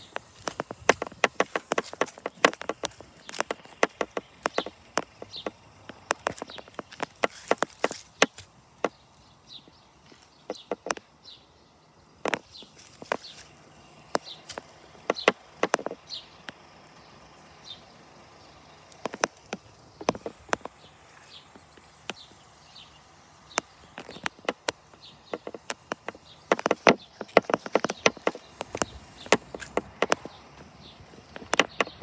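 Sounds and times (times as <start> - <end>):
sharp clicks and taps: 0.0 - 9.0, 10.5 - 11.0, 12.2 - 13.4, 14.1 - 16.6, 18.9 - 20.8, 23.5 - 30.4, 31.3 - 32.0
high falling bird chirps: 0.0 - 32.0.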